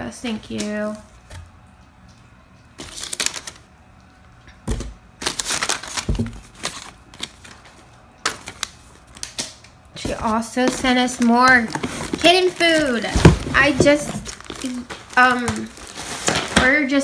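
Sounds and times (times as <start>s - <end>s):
packing paper rustling: 2.8s - 3.7s, 5.2s - 16.9s
dull knocks: 13.1s - 14.2s.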